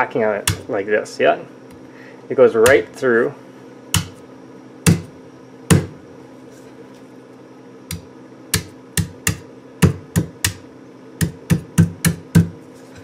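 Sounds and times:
knife chopping coconut husk: 0.4s - 0.7s, 2.6s - 2.9s, 4.0s - 4.2s, 4.8s - 5.1s, 5.7s - 6.0s, 7.9s - 10.6s, 11.2s - 12.6s.

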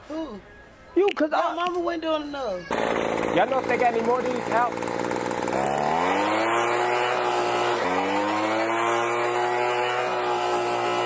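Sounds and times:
leaf blower motor: 2.7s - 11.0s.

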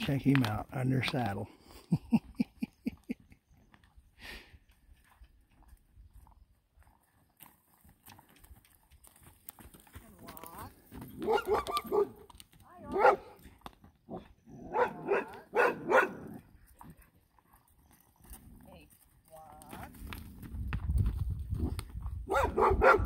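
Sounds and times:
dog barking: 11.2s - 12.2s, 12.9s - 13.4s, 14.6s - 16.4s, 22.3s - 23.0s.

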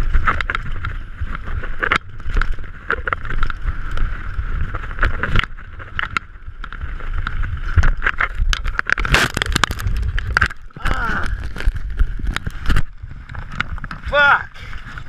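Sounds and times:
wind rumble on microphone: 0.0s - 15.0s
camera handling rustling: 5.0s - 14.0s.

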